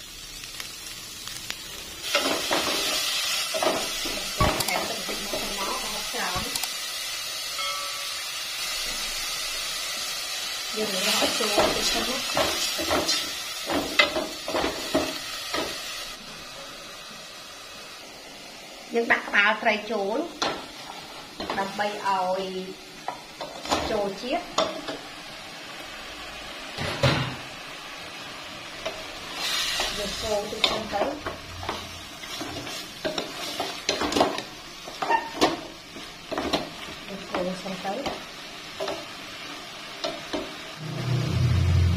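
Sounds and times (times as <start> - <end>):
faint sizzle: 0.0 - 41.9
wooden spatula scraping a pot: 34.9 - 35.5.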